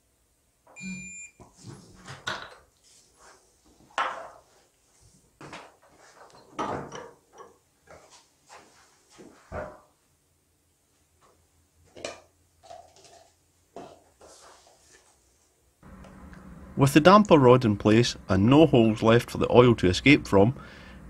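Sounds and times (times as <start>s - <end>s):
torque wrench beep: 0.8s - 1.4s.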